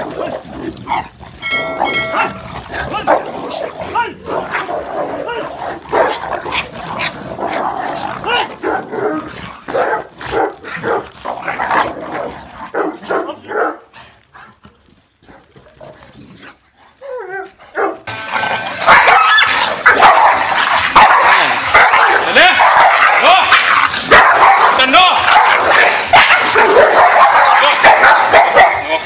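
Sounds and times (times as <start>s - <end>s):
dogs snarling and barking: 0.0s - 29.0s
dog wavering cry: 18.8s - 20.5s.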